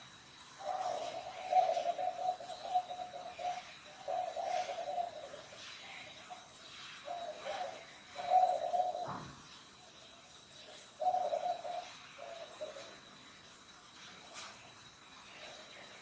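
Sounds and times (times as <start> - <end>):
dove cooing: 0.0 - 9.5, 10.6 - 13.1
faint high-pitched tone: 0.0 - 16.0.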